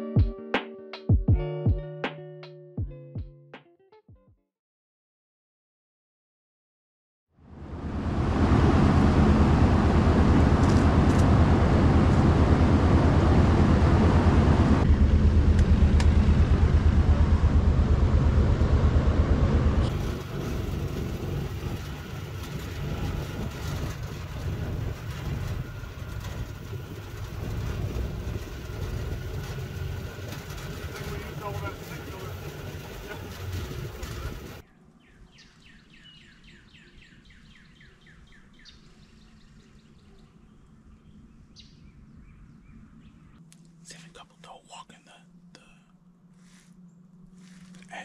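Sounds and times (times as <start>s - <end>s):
vehicle engine rumbling: 7.5s - 34.6s, 39.0s - 48.0s.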